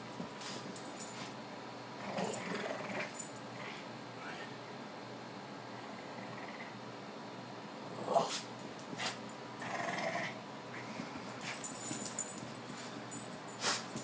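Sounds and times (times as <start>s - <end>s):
dogs scuffling and knocking: 0.0s - 1.4s, 11.3s - 14.0s.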